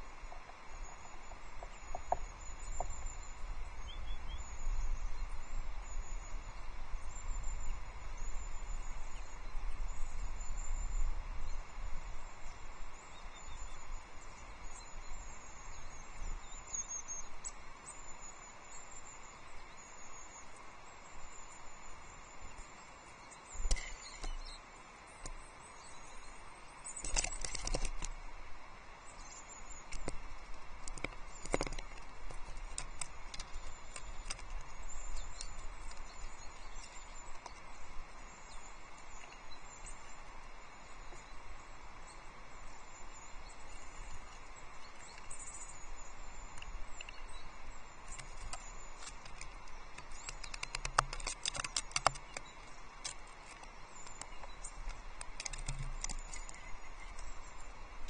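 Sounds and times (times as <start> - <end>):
songbirds chirping: 0.0 - 58.0
sharp taps and flutters: 48.1 - 56.6.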